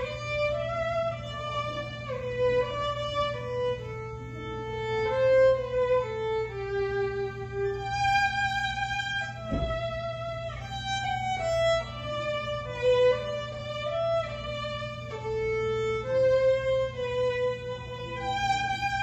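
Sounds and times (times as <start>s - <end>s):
steady low hum: 0.0s - 19.0s
violin slow melody: 0.0s - 19.0s
brief low thump: 9.3s - 10.1s.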